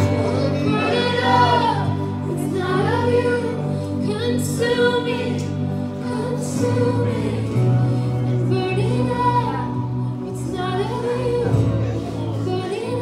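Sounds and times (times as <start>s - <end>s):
band playing held chords: 0.0s - 12.8s
woman singing: 0.0s - 13.0s.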